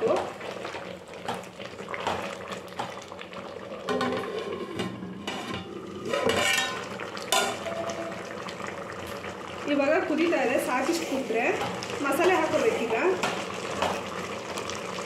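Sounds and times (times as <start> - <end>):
thick liquid boiling: 0.0 - 15.0
metal ladle scraping a pot: 4.0 - 8.1.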